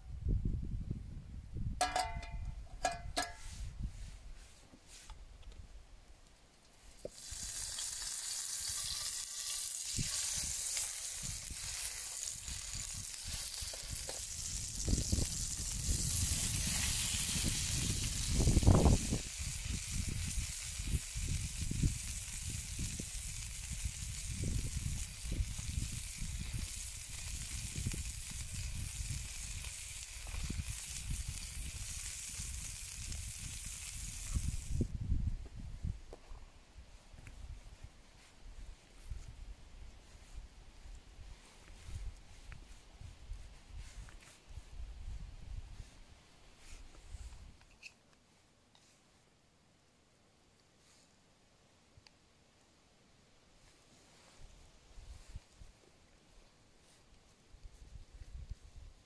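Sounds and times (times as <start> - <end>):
steaks sizzling in a frying pan: 7.1 - 34.8.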